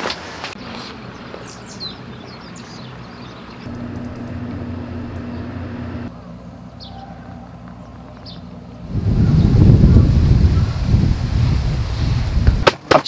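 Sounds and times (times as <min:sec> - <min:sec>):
low engine hum: 0:03.4 - 0:06.7.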